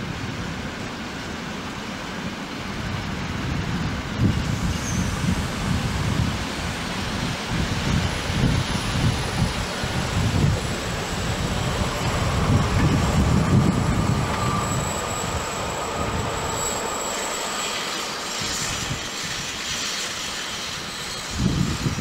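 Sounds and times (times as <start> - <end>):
freight train rumbling past: 0.0 - 22.0
faint wheel squeal: 4.5 - 5.4, 13.7 - 22.0.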